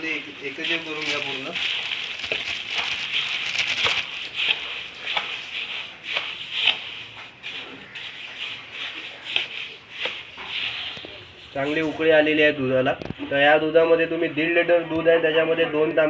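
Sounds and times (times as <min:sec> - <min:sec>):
spatula scraping a metal pot: 0:00.5 - 0:12.1.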